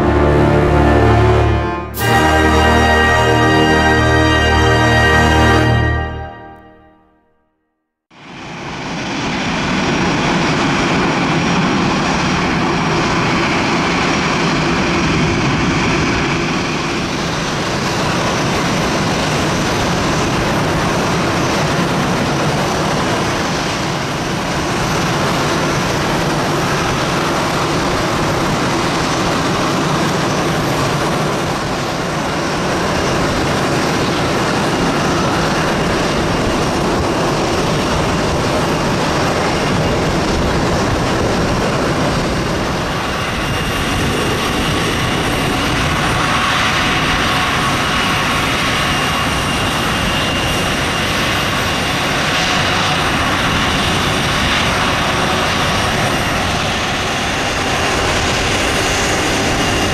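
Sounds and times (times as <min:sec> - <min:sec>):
jet engine noise: 0:00.0 - 0:06.6, 0:08.2 - 0:59.9
high whine: 0:00.0 - 0:07.3.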